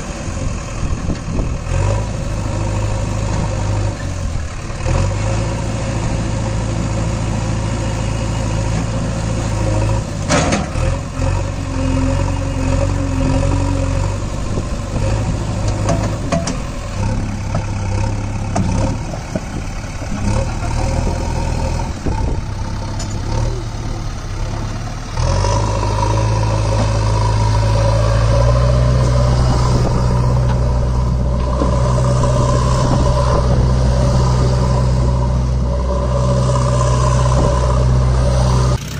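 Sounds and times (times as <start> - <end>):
engine idling: 14.2 - 38.9.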